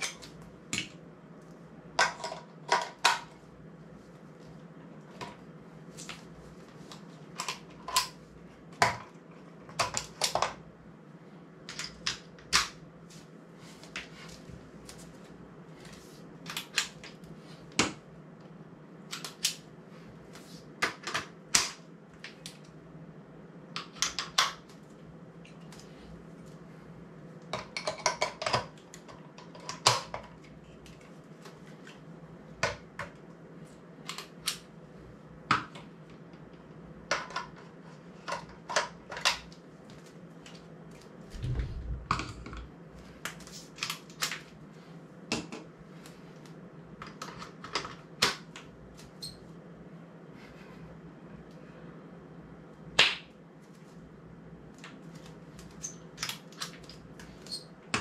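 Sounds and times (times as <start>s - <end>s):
steady low hum: 24.6s - 58.0s.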